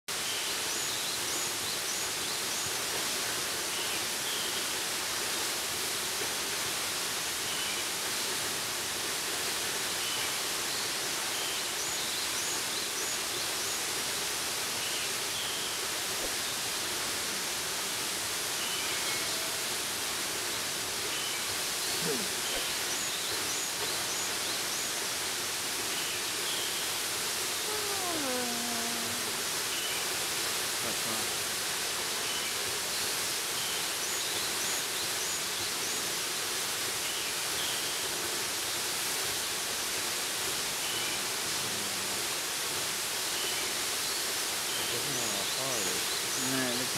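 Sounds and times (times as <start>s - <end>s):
faint bird chirps: 21.1s - 24.9s.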